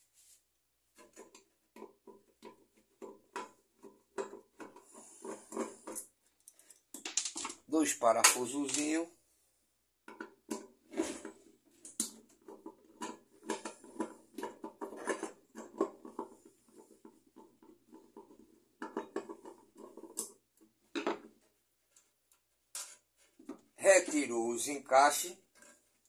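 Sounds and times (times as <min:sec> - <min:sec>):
small clicks and scrapes on metal: 0:01.0 - 0:07.6, 0:10.5 - 0:20.4, 0:25.4 - 0:26.0.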